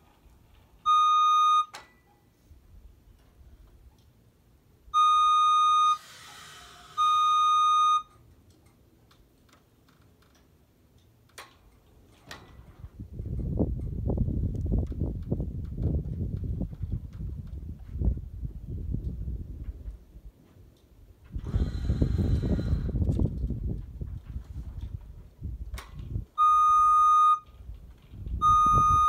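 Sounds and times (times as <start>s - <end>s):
warning alarm beeping: 0.8s - 1.8s, 4.9s - 6.1s, 6.9s - 8.1s, 26.4s - 27.5s, 28.4s - 29.0s
short hiss: 6.0s - 7.0s.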